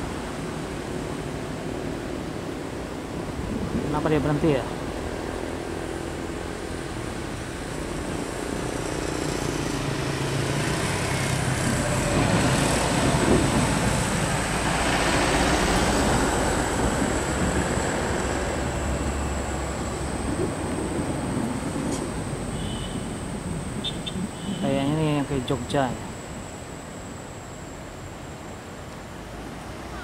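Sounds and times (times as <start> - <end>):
low engine hum: 0.0 - 30.0
faint high whine: 5.6 - 30.0
vehicle passing: 7.6 - 26.6.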